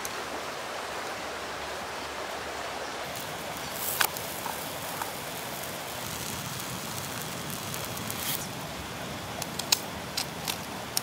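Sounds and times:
batter sizzling in a frying pan: 3.1 - 8.5
sharp hiss: 3.1 - 10.6
gas stove burner hiss: 3.1 - 11.0.

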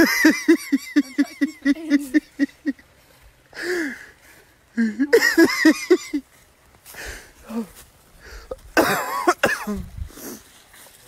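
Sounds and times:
people laughing hard: 0.0 - 2.8, 4.8 - 6.2.

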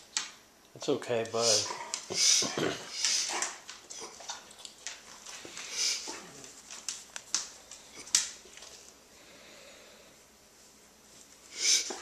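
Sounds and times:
dog sniffing hard: 1.4 - 4.2, 5.6 - 6.4, 11.5 - 12.0.

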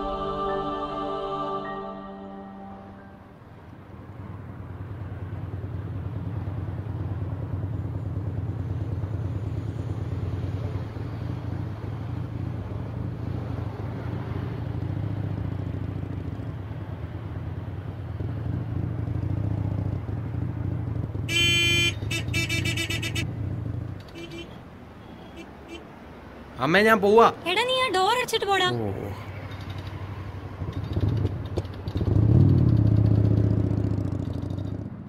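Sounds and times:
horn honking: 0.0 - 3.6, 21.3 - 23.4, 24.0 - 25.9
motorcycle engine running: 30.6 - 35.0.

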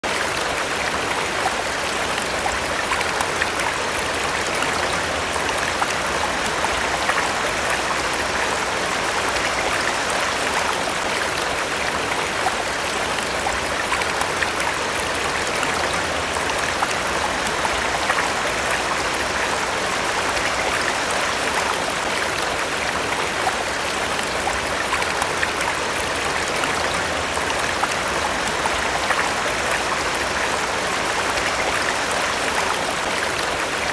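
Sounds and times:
stream water flowing: 0.0 - 33.9.

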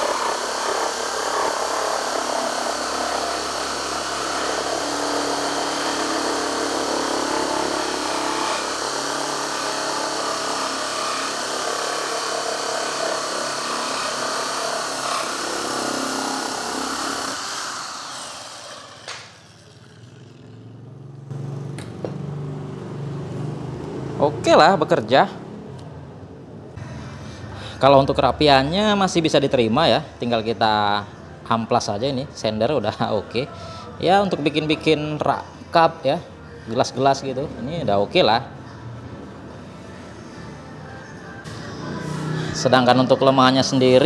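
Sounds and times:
drill winding down: 0.0 - 20.6
electric drill with hole saw cutting wood: 0.0 - 20.6.

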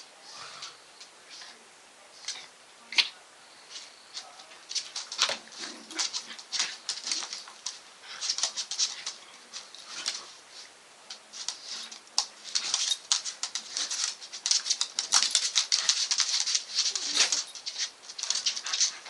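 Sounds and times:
dog claws scrabbling on wood: 11.4 - 19.0.

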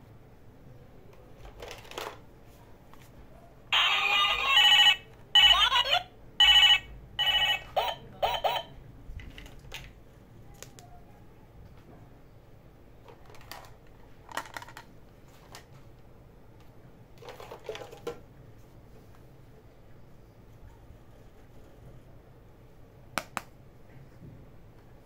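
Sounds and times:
plastic toys clacking: 1.4 - 2.2, 13.1 - 14.9, 17.2 - 18.2
toy telephone electronic ringtone: 3.8 - 8.7.

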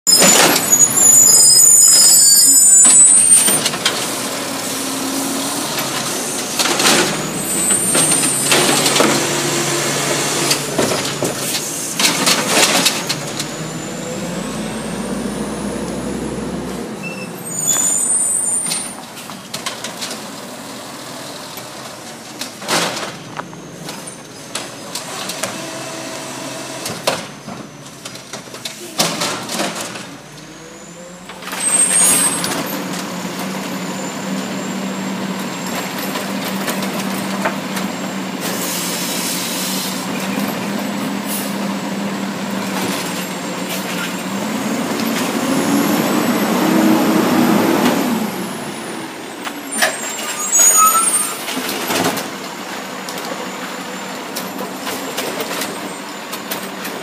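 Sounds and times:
garbage truck engine running: 0.1 - 57.0
air brakes hissing: 38.4 - 40.1.

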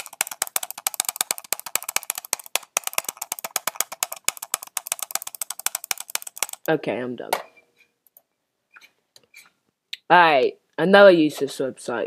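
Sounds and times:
mouse button clicking rapidly: 0.0 - 6.7.

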